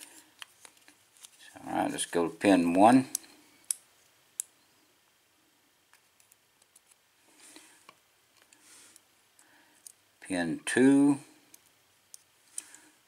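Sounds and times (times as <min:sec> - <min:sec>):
handling rustle: 0:00.0 - 0:03.0.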